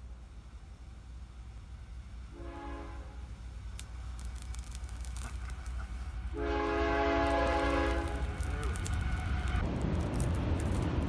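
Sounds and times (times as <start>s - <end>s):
low steady rumble: 0.0s - 11.0s
distant train horn: 2.3s - 3.4s, 6.3s - 9.7s.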